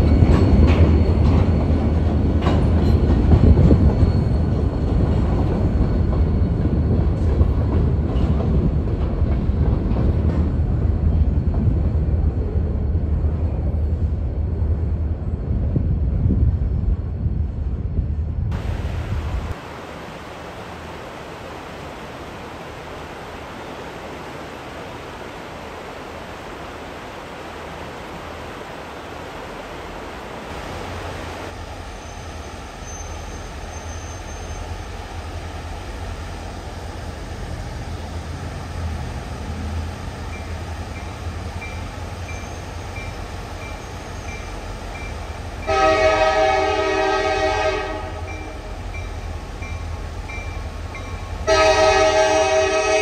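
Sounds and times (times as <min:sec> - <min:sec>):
rushing creek: 0:18.5 - 0:53.0
locomotive horn blast: 0:45.7 - 0:48.7, 0:51.4 - 0:53.0.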